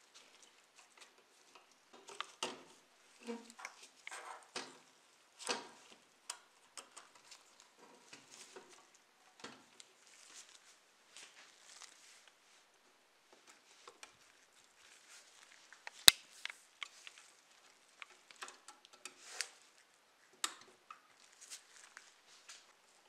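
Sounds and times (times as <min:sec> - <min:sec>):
gloves rustling: 0:09.8 - 0:12.8, 0:21.1 - 0:23.0.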